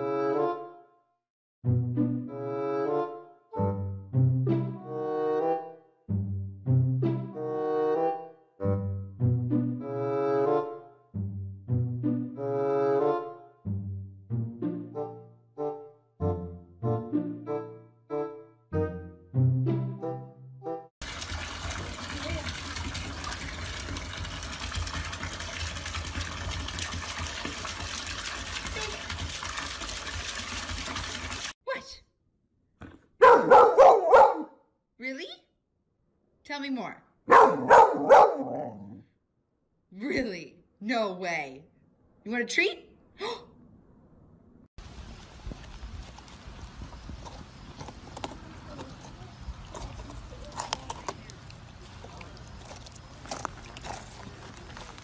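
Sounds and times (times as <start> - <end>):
water pouring into bathtub: 21.0 - 31.6
puppy teeth scraping pumpkin: 47.2 - 54.7.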